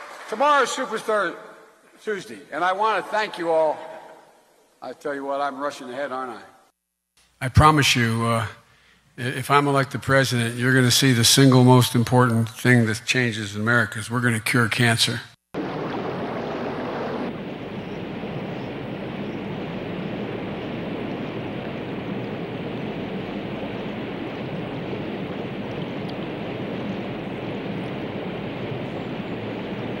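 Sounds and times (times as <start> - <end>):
flooded river rushing: 15.6 - 19.4.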